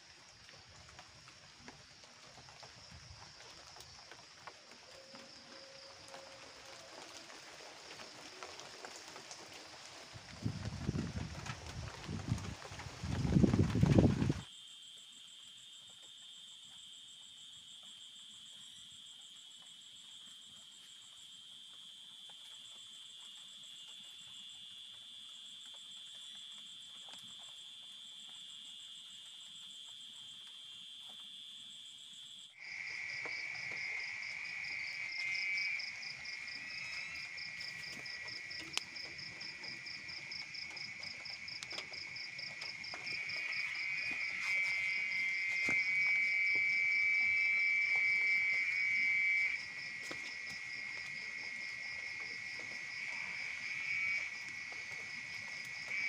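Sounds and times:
insects and frogs trilling: 0.0s - 56.0s.

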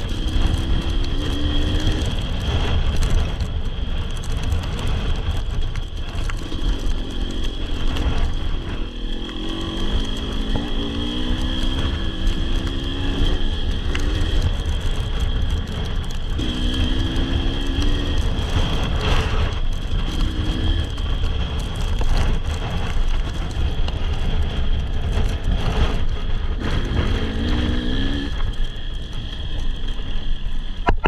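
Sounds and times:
wind rumble on microphone: 0.0s - 31.0s
dirt bike engine revving: 6.4s - 14.6s, 16.4s - 19.4s, 26.6s - 28.4s.

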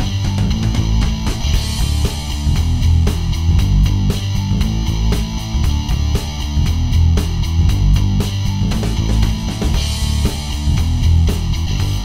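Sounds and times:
guitar-led rock music: 0.0s - 12.0s.

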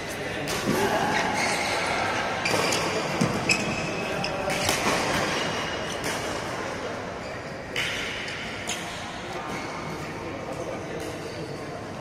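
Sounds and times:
shoes squeaking on court floor: 1.1s - 6.2s.

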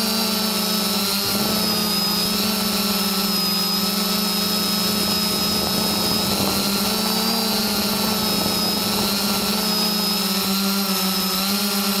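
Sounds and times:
drone motors humming and whining: 0.0s - 12.0s.

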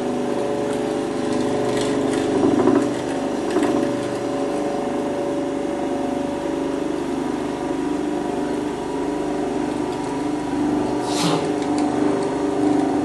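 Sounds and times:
electric floor scraper humming: 0.0s - 13.0s.

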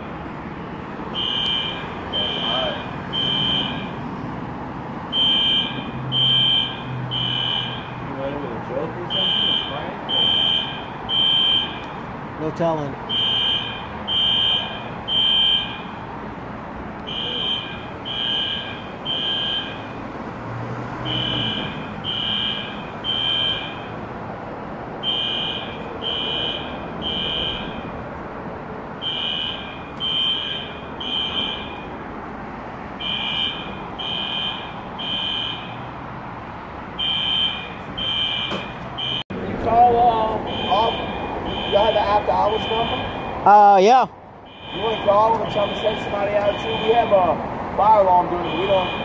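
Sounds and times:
fire alarm high-pitched beeps: 1.2s - 3.9s, 5.1s - 8.0s, 9.1s - 12.0s, 13.1s - 16.0s, 17.1s - 19.9s, 21.1s - 23.9s, 25.0s - 27.9s, 29.0s - 31.9s, 33.0s - 35.8s, 37.0s - 39.2s, 40.5s - 43.4s, 44.5s - 47.3s, 48.4s - 49.0s.

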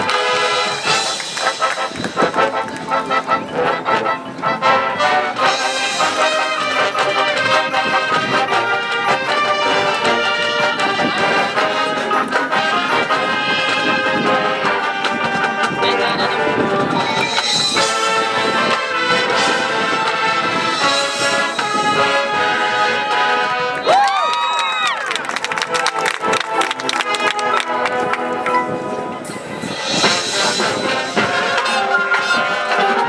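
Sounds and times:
percussion accents: 0.0s - 4.1s, 23.8s - 32.4s
brass chords: 0.0s - 23.8s, 25.4s - 33.0s.

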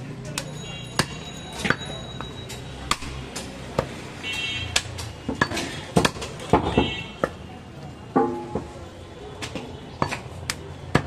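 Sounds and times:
cleaver chopping meat on wood: 4.7s - 7.4s.

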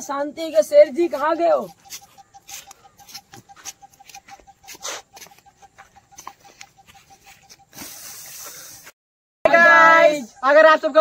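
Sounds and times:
scuffs: 0.9s - 8.9s.

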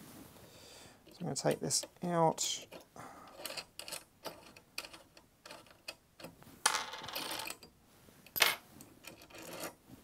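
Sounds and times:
metal bolt clicks and clinks: 2.6s - 6.3s.

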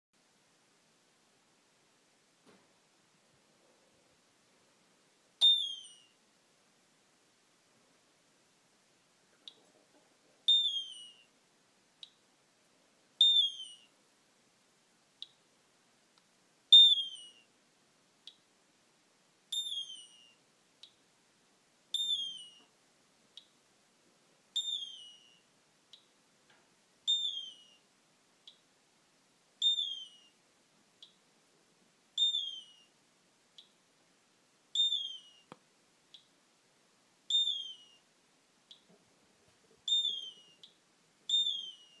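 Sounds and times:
electronic whistle-like bird cry: 5.4s - 6.1s, 10.5s - 11.3s, 13.2s - 13.9s, 16.7s - 17.5s, 19.5s - 20.4s, 22.0s - 22.6s, 24.6s - 25.4s, 27.1s - 27.8s, 29.6s - 30.3s, 32.2s - 32.9s, 34.8s - 35.5s, 37.3s - 38.0s, 39.9s - 40.6s, 41.3s - 42.0s.

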